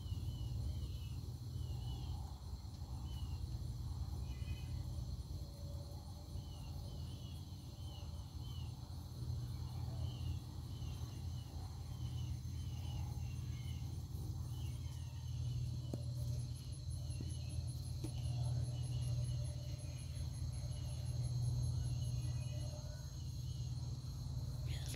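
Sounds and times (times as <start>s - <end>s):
insects trilling: 0.0s - 24.9s.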